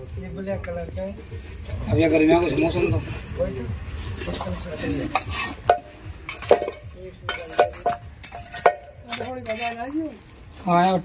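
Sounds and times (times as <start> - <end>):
crickets chirping: 0.0 - 11.0
metal clinking on stones: 4.3 - 10.0.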